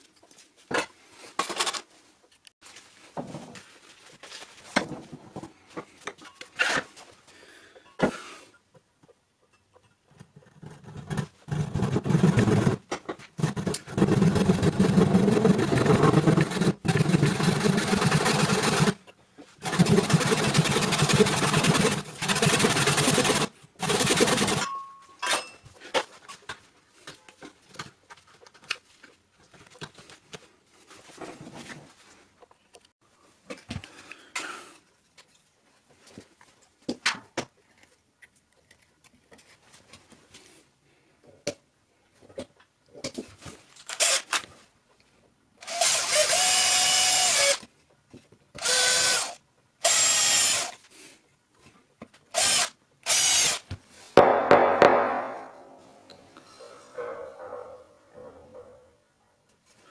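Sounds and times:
hand saw sawing: 10.7 - 12.8, 13.4 - 19.0, 19.6 - 24.6.

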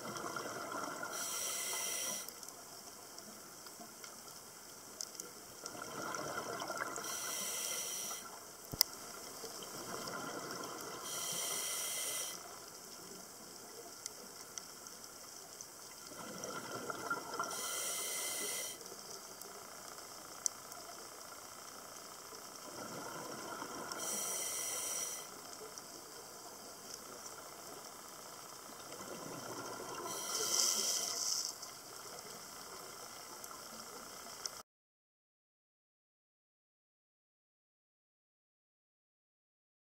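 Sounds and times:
regulator hiss: 0.4 - 3.5, 6.8 - 16.0, 17.0 - 21.0, 21.6 - 28.8, 29.4 - 34.2
bubbly exhaled air: 16.1 - 18.8.

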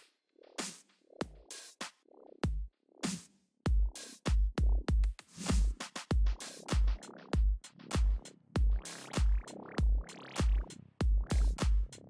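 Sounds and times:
electronic music: 0.0 - 12.0
heavy kick drum: 1.2 - 1.5, 2.4 - 2.7, 3.7 - 12.0.

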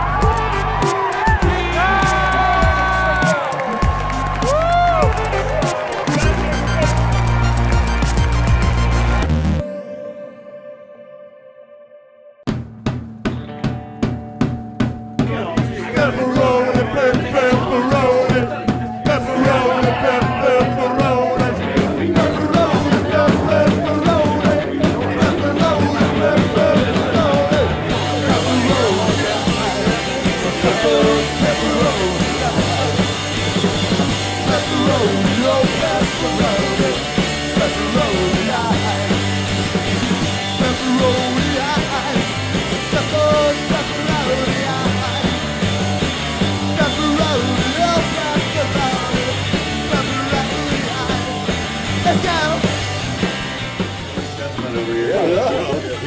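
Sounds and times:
rock music with singing: 0.0 - 10.2, 12.5 - 56.0.

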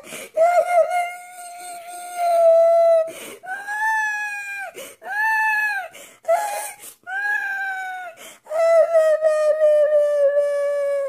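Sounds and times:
sharp gasping breaths: 0.0 - 0.4, 3.1 - 3.4, 4.8 - 5.0, 5.9 - 7.1, 8.2 - 8.5
man wailing like a baby: 0.4 - 11.0.

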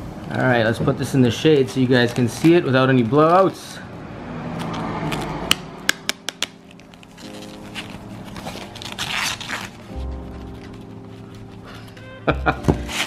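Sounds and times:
tissue wrap rustling and crinkling: 6.3 - 13.0.

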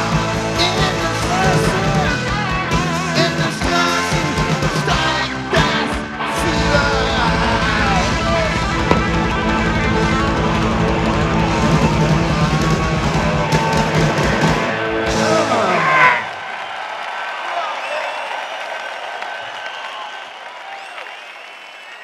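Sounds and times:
bass guitar: 0.0 - 16.2
electric guitar: 0.0 - 16.3
fast drumming: 7.1 - 15.6.

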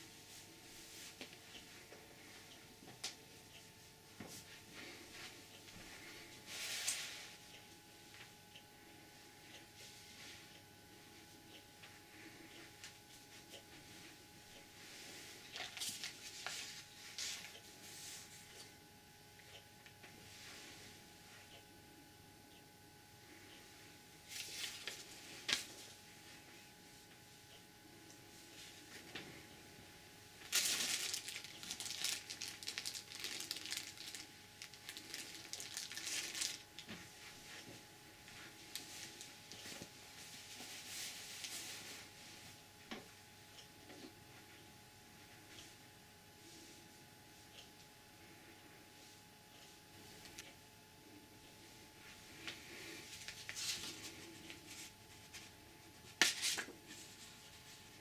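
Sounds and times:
sharp paper crackle: 30.4 - 36.8
plastic bag crinkling: 30.4 - 36.9.

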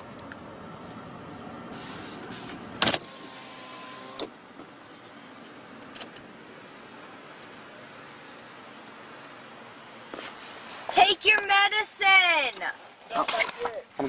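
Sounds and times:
faint steady whine: 0.0 - 14.0
power window motor running: 1.7 - 4.4.

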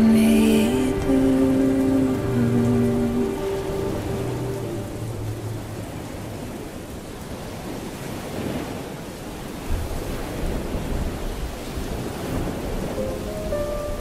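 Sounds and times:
low rumble: 0.0 - 7.6
steady rain: 0.0 - 14.0.

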